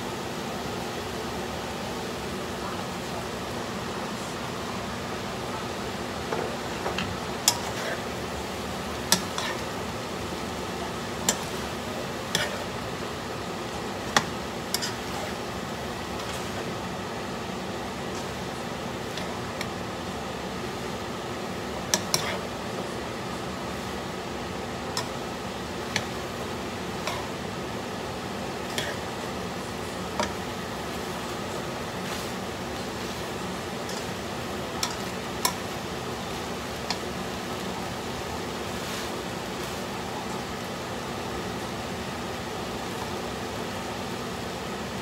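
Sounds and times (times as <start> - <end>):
hot pan hissing: 6.0 - 45.0
utensil clicking against wok: 34.8 - 35.6.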